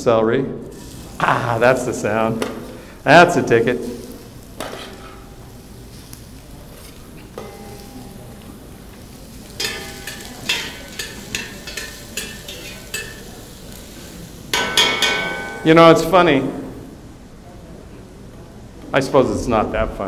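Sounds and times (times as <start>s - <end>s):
vegetables sizzling in pot: 0.6s - 17.1s
metal spoon knocking steel pan: 7.4s - 8.0s, 9.6s - 13.2s, 14.6s - 15.7s.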